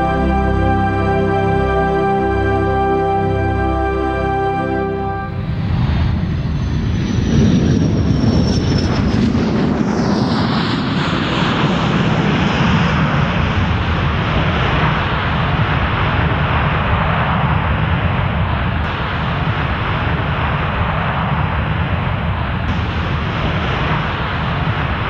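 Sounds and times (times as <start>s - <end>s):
soft music: 0.0s - 5.4s
jet engine noise: 0.0s - 25.0s.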